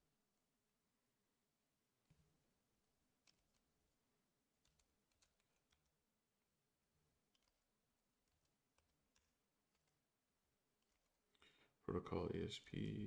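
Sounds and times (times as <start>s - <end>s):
faint keyboard typing: 3.1s - 6.2s, 6.9s - 11.8s.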